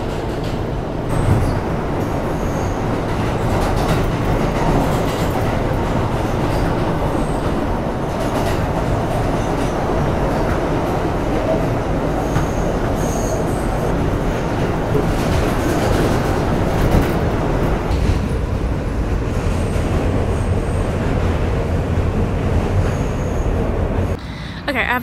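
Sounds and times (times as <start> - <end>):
subway train rumble: 0.0 - 25.0
high wheel squeals: 2.4 - 2.9, 12.2 - 13.8, 22.8 - 23.6.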